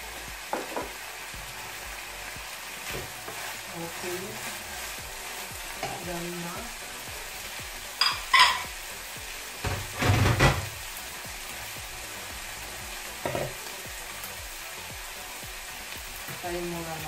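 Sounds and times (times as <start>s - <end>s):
meat sizzling in a frying pan: 0.0s - 17.0s
kitchenware clattering: 8.0s - 8.7s, 9.6s - 10.7s
kitchenware clinking: 8.0s - 8.7s.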